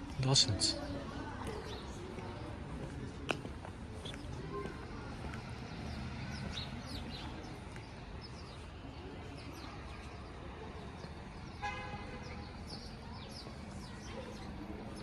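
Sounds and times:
city traffic rumble: 0:00.0 - 0:15.0
sparrows chirping: 0:00.0 - 0:15.0
vehicle horn toot: 0:11.6 - 0:12.4.

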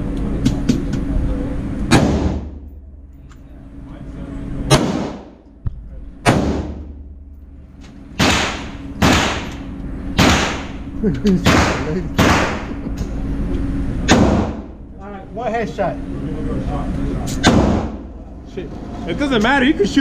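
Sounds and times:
handgun shots indoors: 0:01.9 - 0:02.6, 0:04.7 - 0:05.3, 0:06.2 - 0:07.0, 0:08.2 - 0:09.6, 0:10.2 - 0:10.8, 0:11.4 - 0:12.7, 0:14.1 - 0:14.7, 0:17.4 - 0:18.0.

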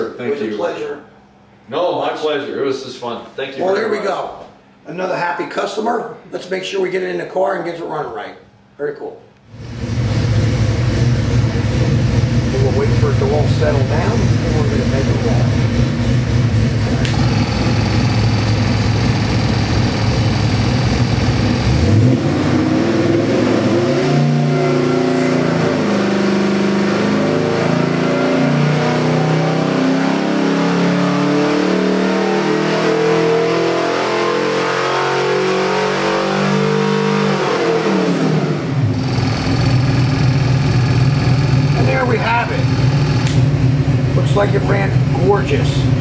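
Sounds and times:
engine revving on a dyno: 0:09.5 - 0:46.0.

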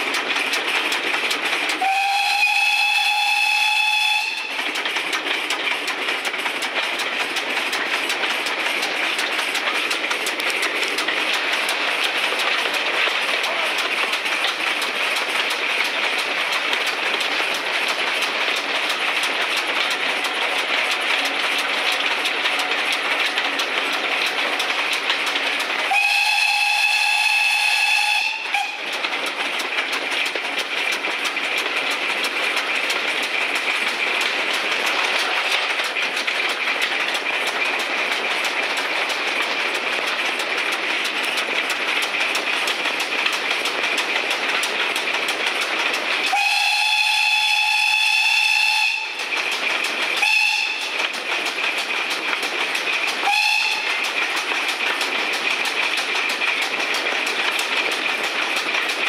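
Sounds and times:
train wheels on track: 0:00.0 - 0:59.0
steam locomotive whistle: 0:01.8 - 0:04.6, 0:25.9 - 0:28.8, 0:46.3 - 0:49.2, 0:50.2 - 0:50.9, 0:53.2 - 0:53.9.

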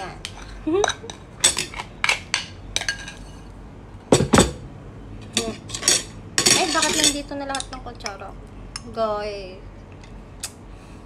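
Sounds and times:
ceramic and cutlery clinking: 0:00.0 - 0:03.5, 0:05.3 - 0:07.8.

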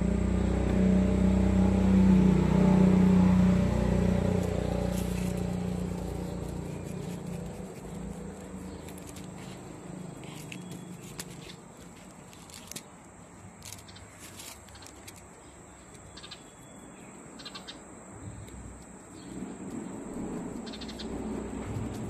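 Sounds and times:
high insect drone: 0:13.6 - 0:22.0.

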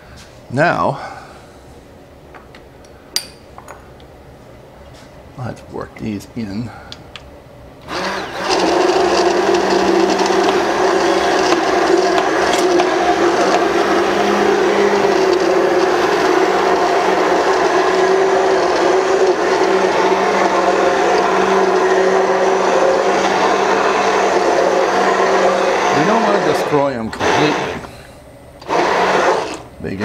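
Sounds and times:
immersion blender running: 0:07.8 - 0:27.9, 0:28.6 - 0:30.0.

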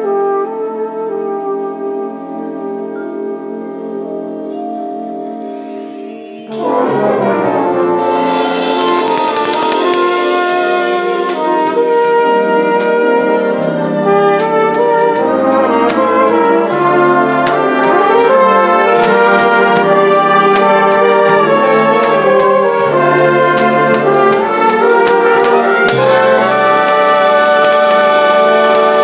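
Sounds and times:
flugelhorn melody: 0:00.0 - 0:29.0
bright high hiss: 0:04.3 - 0:11.1.

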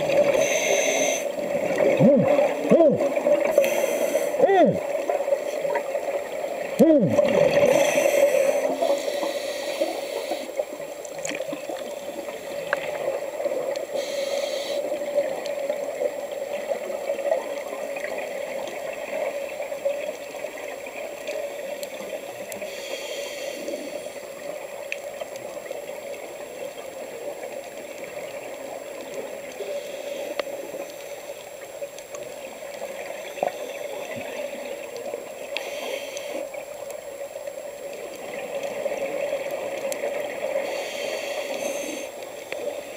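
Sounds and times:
underwater crackling: 0:00.0 - 0:42.9
diver's exhaled bubbles: 0:01.7 - 0:03.3, 0:06.8 - 0:08.0.

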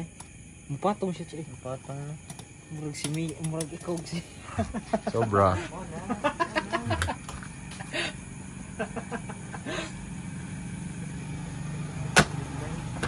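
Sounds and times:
voices: 0:00.0 - 0:13.0
motorcycle engine idling: 0:05.7 - 0:13.0.

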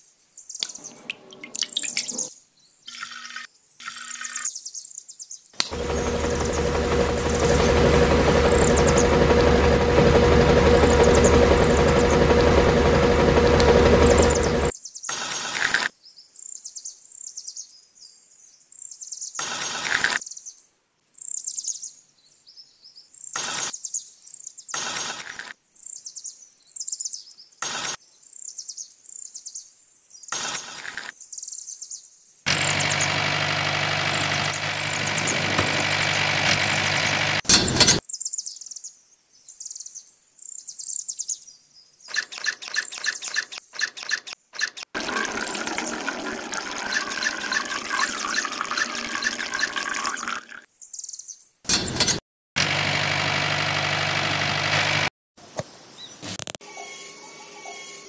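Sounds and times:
small birds chirping: 0:00.0 - 0:09.8, 0:14.0 - 0:24.8, 0:25.6 - 0:33.2, 0:34.0 - 0:35.9, 0:38.0 - 0:44.6, 0:46.9 - 0:51.6
small motor running: 0:05.6 - 0:14.7, 0:32.5 - 0:38.0, 0:42.1 - 0:50.5, 0:51.7 - 0:55.1
quick clicks: 0:42.1 - 0:45.0.

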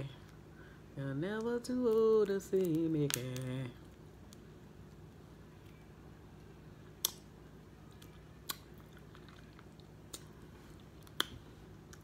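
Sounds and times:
quiet chewing: 0:07.9 - 0:12.0.

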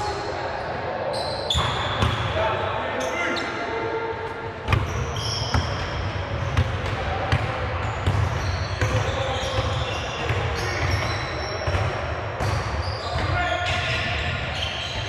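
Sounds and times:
sneakers squeaking: 0:01.1 - 0:15.0.

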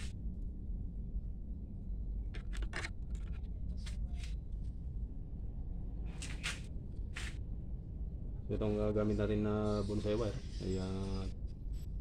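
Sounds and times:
low rumble: 0:00.0 - 0:09.4.

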